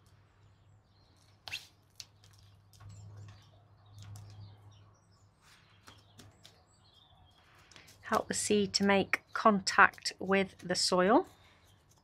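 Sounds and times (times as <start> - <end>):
bird chirps: 0.5 - 9.5.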